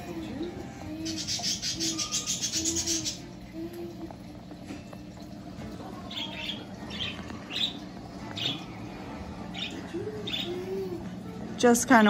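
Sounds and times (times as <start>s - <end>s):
steady low hum: 0.0s - 12.0s
parakeets chirping: 1.0s - 3.3s, 6.0s - 11.0s.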